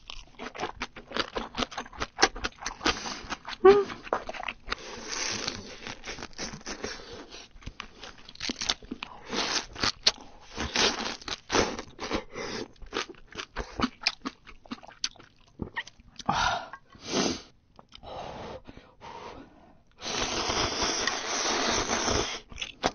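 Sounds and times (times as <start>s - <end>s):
crunching and chewing crab shell: 0.0s - 16.3s.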